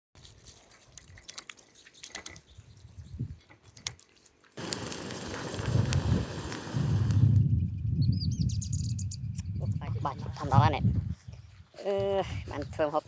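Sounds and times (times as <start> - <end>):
wet sticky squelches: 0.2 - 4.6
small drips and clicks: 0.2 - 7.2
wood fire burning: 3.6 - 7.4
fire crackles: 3.6 - 7.5.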